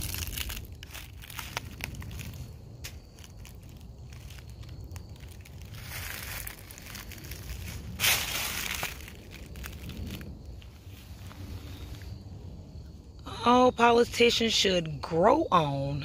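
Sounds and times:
footsteps crunching on forest trail: 0.0s - 12.2s.

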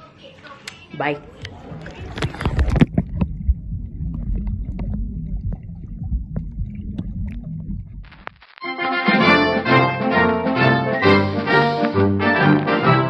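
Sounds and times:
water sloshing and splashing: 1.2s - 8.0s
muffled underwater rumble: 1.2s - 8.4s
brass-led music: 8.6s - 13.0s.

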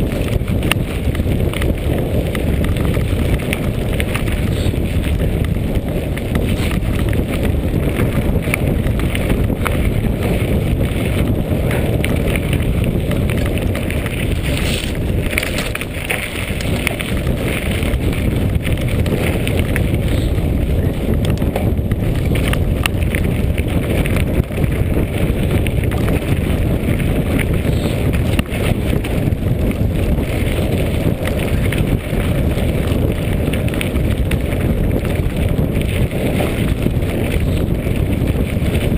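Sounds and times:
bike rattling over bumps: 0.0s - 38.9s
tyres rumbling on loose stones: 0.0s - 38.9s
wind buffeting microphone: 0.0s - 38.9s.

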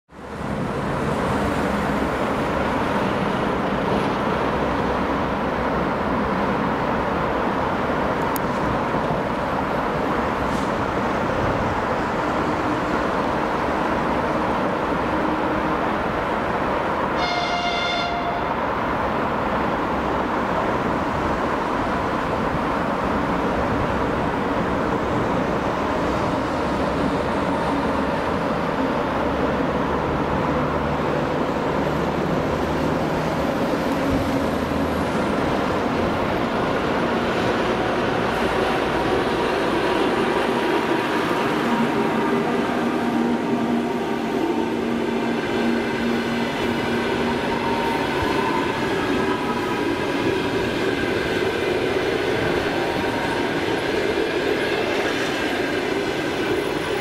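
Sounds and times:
train rumbling: 0.1s - 57.0s
high-pitched train horn: 17.1s - 18.7s.

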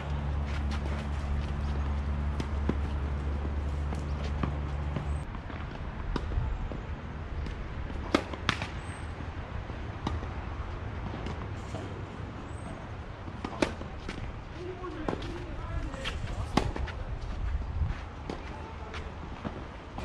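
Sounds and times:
outdoor background noise: 0.0s - 20.0s
tennis ball hit by racket: 7.4s - 8.8s, 13.3s - 14.2s.

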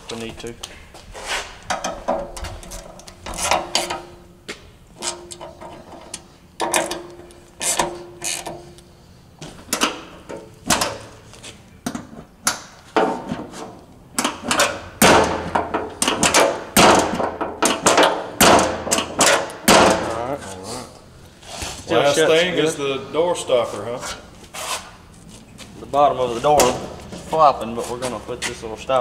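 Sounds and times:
metallic clunks and knocks: 1.7s - 4.3s, 5.0s - 8.7s, 9.4s - 11.2s, 11.8s - 20.2s.

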